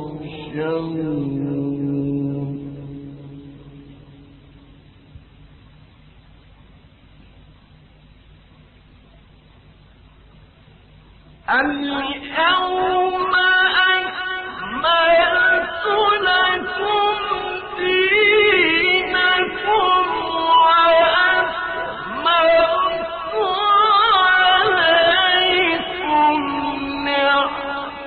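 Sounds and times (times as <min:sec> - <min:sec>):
man chanting melodically: 0:00.0 - 0:04.4, 0:11.4 - 0:28.0.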